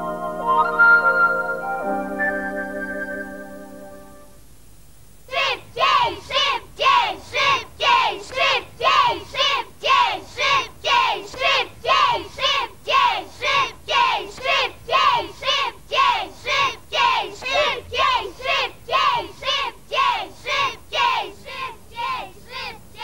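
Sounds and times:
children chanting in unison: 5.3s - 23.0s.

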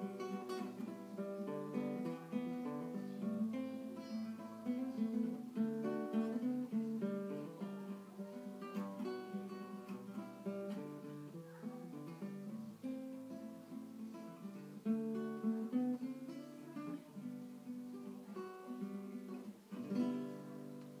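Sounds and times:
acoustic guitar: 0.0s - 21.0s.

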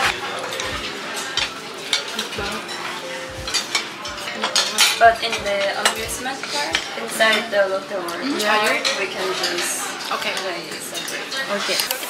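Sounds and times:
cutlery and dishes clinking: 0.0s - 12.0s.

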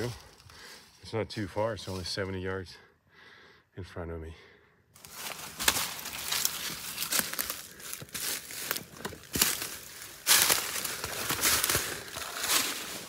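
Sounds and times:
footsteps crunching dry leaves: 5.0s - 13.0s.

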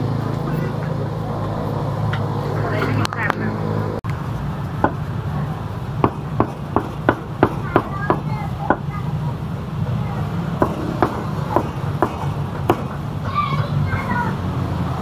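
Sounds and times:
meat cleaver chopping: 10.6s - 13.0s.

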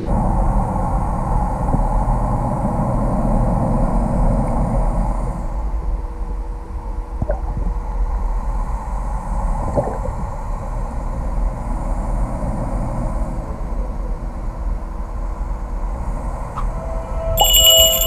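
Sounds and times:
underwater rumble: 6.8s - 17.0s
low hum: 14.9s - 18.0s.

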